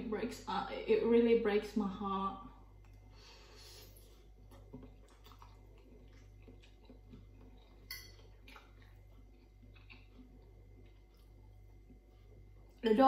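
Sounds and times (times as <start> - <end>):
faint steady hum: 0.0 - 13.0
chewing noodles: 3.8 - 12.9
metal fork clicking on plate: 7.9 - 8.2.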